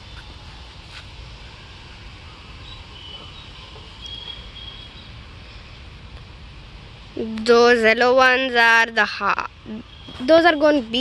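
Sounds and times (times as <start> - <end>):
faint high chirps: 2.6 - 5.6, 9.7 - 10.7.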